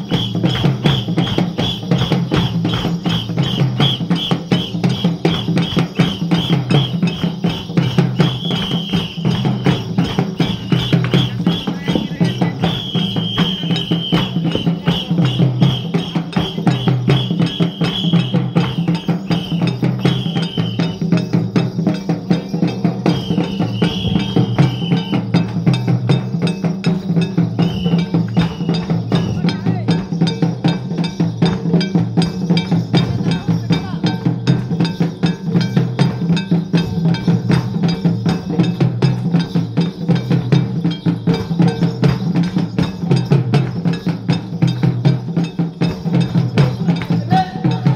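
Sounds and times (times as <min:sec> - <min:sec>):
barrel drum and percussion beat: 0:00.0 - 0:47.9.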